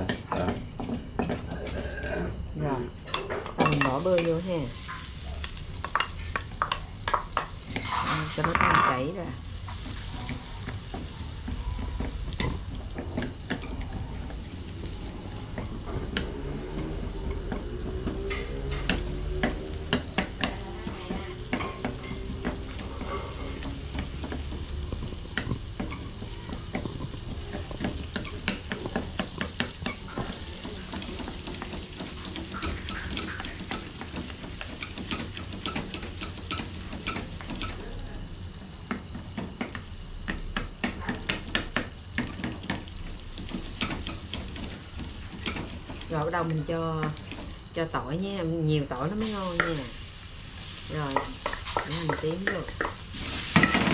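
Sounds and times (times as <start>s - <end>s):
butter sizzling in a wok: 3.7s - 53.9s
wooden spatula scraping a pan: 7.1s - 8.6s.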